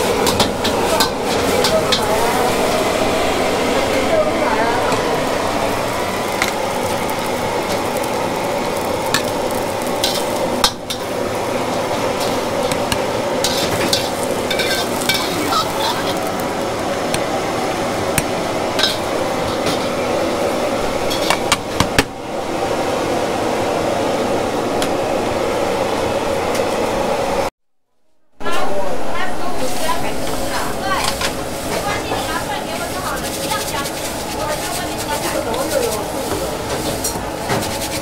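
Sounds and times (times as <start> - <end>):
hissing kitchen din: 0.0 - 26.8, 28.4 - 38.0
dishes and utensils clinking: 12.2 - 16.2.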